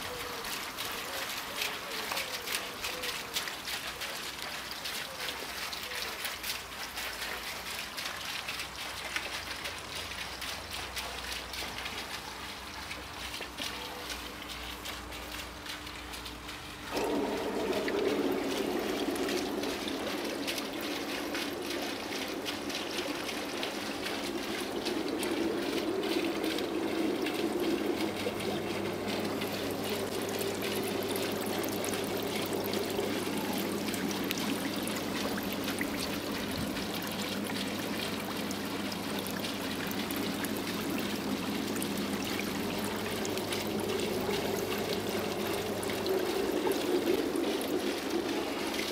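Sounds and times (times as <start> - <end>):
low steady hum: 0.0 - 48.9
air bubbling through water: 16.9 - 48.9.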